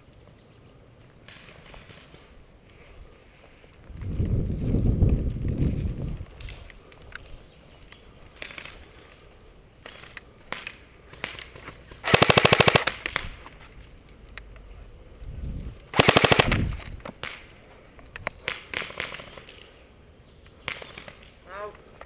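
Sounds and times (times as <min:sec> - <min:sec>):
airsoft rifle full-auto bursts: 0:12.0 - 0:13.2, 0:15.9 - 0:16.8.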